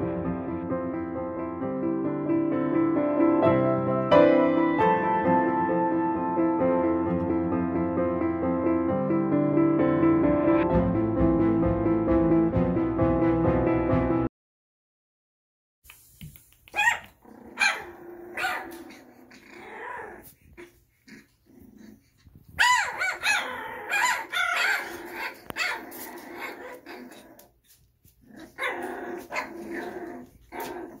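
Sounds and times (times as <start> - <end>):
puppies barking and yapping: 16.7 - 31.0.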